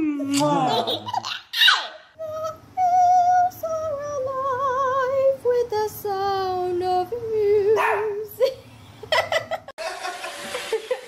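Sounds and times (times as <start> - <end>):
woman singing with vibrato: 2.2 - 8.4.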